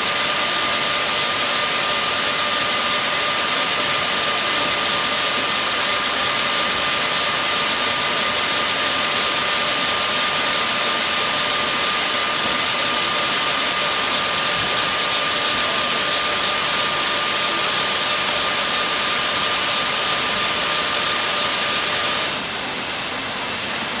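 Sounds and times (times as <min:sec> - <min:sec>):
knitting machine high whine: 0:00.0 - 0:24.0
knitting machine hiss: 0:00.0 - 0:24.0.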